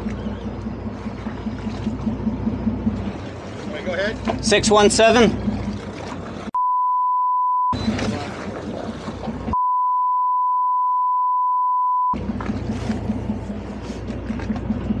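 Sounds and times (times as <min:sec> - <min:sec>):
low steady engine hum: 0:00.0 - 0:06.6, 0:07.8 - 0:09.6, 0:12.2 - 0:15.0
open-water noise: 0:00.0 - 0:06.6, 0:07.7 - 0:09.7, 0:12.1 - 0:15.0
censor bleep tone: 0:06.6 - 0:08.0, 0:09.6 - 0:12.2.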